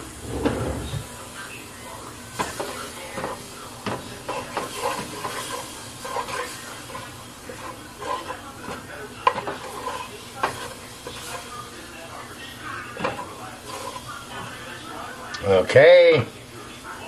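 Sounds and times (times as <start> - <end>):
garlic sizzling in a pot: 1.0 - 17.0
wooden spoon scraping a pot: 4.2 - 11.5, 13.0 - 14.6.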